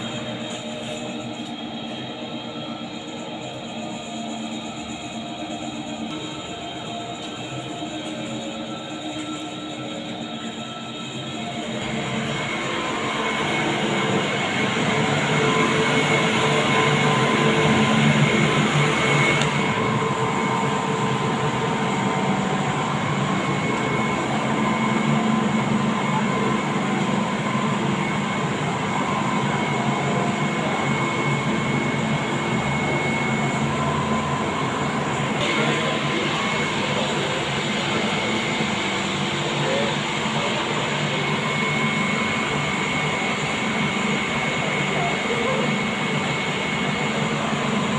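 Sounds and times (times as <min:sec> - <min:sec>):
train electric whine: 0:00.0 - 0:47.9.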